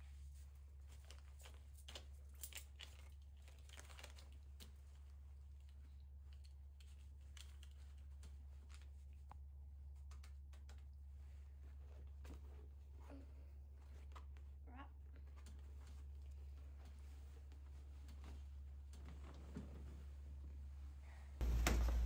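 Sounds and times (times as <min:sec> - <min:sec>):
faint rustles and clicks: 0:00.0 - 0:22.0
steady low hum: 0:04.5 - 0:22.0.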